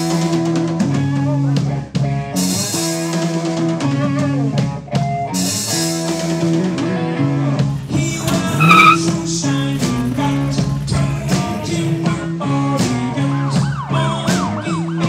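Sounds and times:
rock guitar: 0:00.0 - 0:15.0
drum kit beat: 0:07.7 - 0:13.9.

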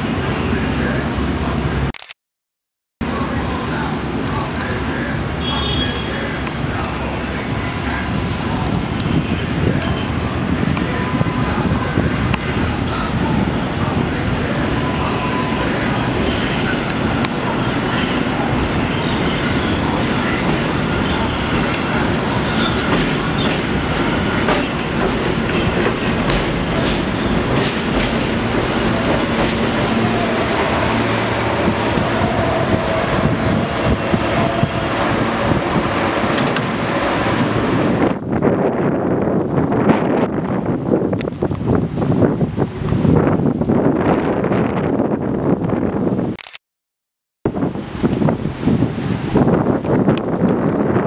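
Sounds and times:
train wheels rumbling on rail: 0:06.2 - 0:45.9.

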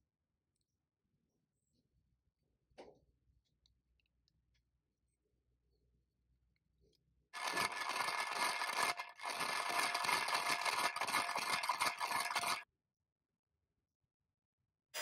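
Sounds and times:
pencil sharpener grinding: 0:07.4 - 0:12.6.

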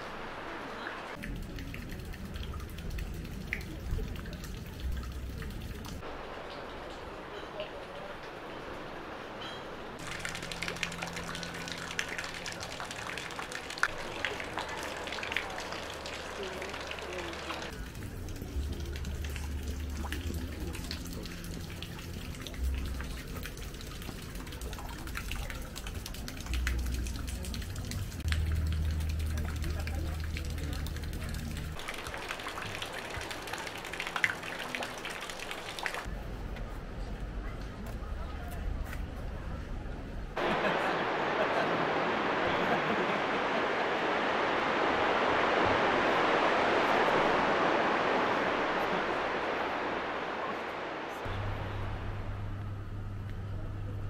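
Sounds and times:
sea surf washing ashore: 0:00.0 - 0:01.2, 0:05.8 - 0:23.2, 0:31.4 - 0:36.1, 0:40.4 - 0:52.4.

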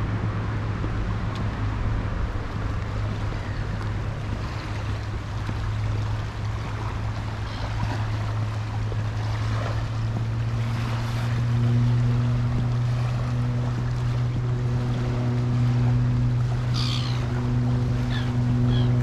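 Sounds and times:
low engine drone: 0:00.0 - 0:19.0
water noise: 0:00.0 - 0:19.0
wind: 0:00.0 - 0:19.0.

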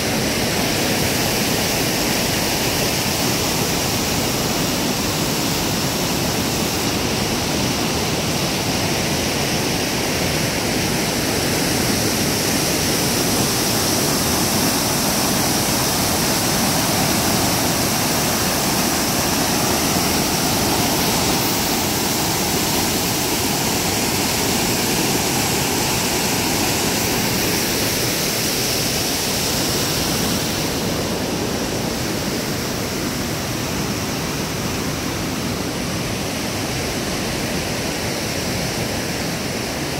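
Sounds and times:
whitewater rushing: 0:00.0 - 0:39.9.

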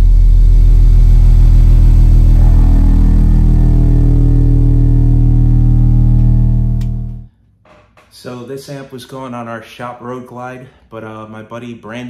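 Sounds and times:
subwoofer playing loud test tone: 0:00.0 - 0:07.3.

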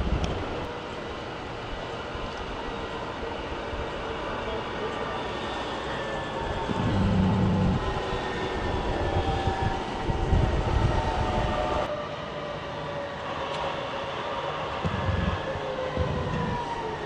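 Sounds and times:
city traffic: 0:00.0 - 0:17.0
tram wheels rumbling on rails: 0:00.0 - 0:17.0
faint steady whine: 0:04.2 - 0:09.1.

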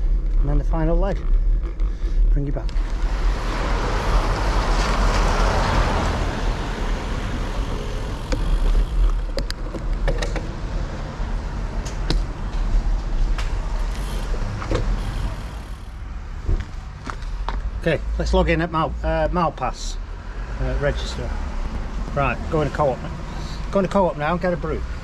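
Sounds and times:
bicycle clicks and rattles: 0:00.0 - 0:04.5, 0:07.6 - 0:10.6, 0:11.8 - 0:16.0
wind rumbling on microphone: 0:00.0 - 0:15.6
tyres hissing on wet road: 0:02.8 - 0:09.1, 0:13.9 - 0:15.9
car passing on wet road: 0:02.8 - 0:09.3, 0:15.0 - 0:15.8.

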